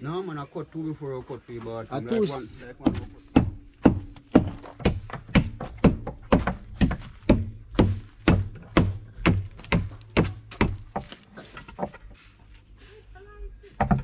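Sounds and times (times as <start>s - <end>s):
hard blows on concrete block: 2.8s - 11.0s.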